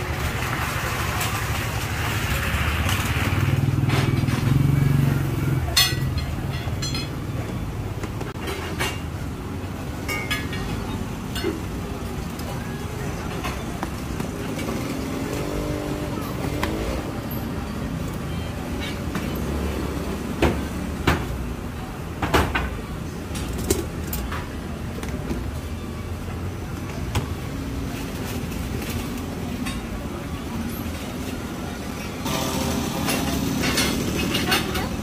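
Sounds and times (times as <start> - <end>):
road traffic rumble: 0.0 - 35.0.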